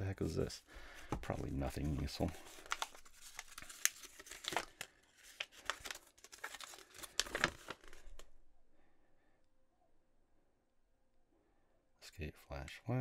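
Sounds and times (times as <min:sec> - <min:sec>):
paper crinkling: 0:00.8 - 0:08.4.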